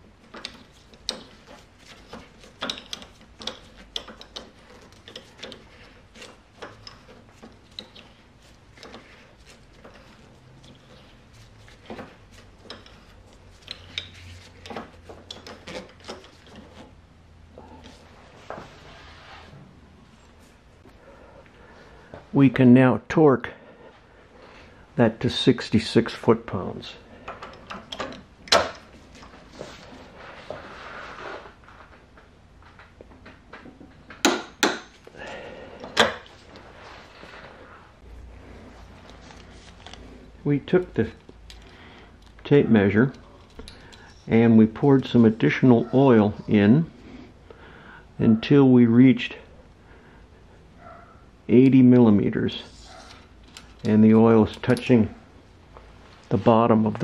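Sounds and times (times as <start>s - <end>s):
tool handling: 0.1s - 17.0s, 27.1s - 30.0s, 33.3s - 37.5s, 52.7s - 55.2s
small metallic clicks and rubbing: 0.2s - 17.0s, 27.2s - 29.4s, 52.7s - 55.0s.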